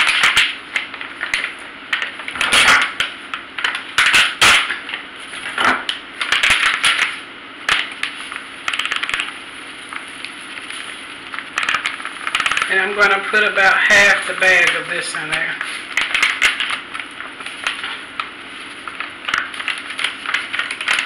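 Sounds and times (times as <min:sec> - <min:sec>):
plastic packet crinkling: 0:00.0 - 0:21.0
seasoning pouring into plastic bag: 0:08.1 - 0:21.0.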